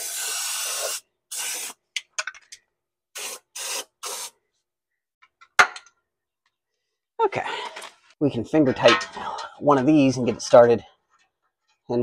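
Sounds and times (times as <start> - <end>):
aerosol can spraying: 0.0 - 1.8, 3.2 - 4.4.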